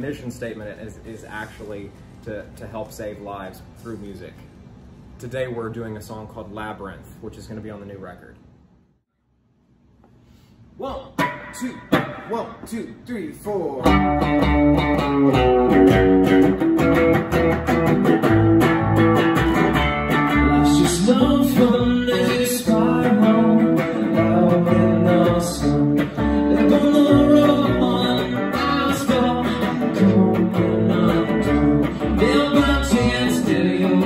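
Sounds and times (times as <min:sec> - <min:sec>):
electric guitar: 0:13.8 - 0:34.0
upright double bass: 0:13.9 - 0:34.0
man singing: 0:20.4 - 0:34.0.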